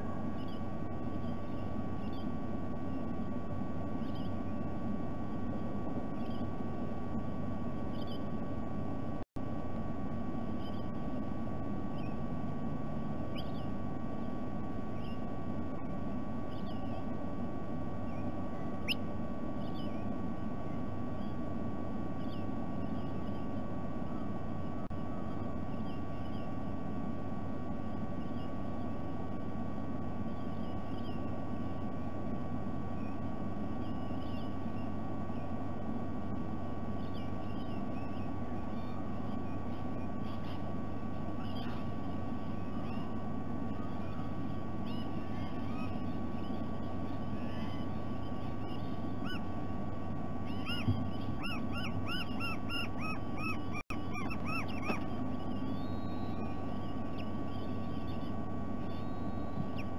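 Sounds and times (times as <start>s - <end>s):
low rumble and electrical hum: 0.0s - 59.9s
high bird chirps: 50.4s - 59.9s.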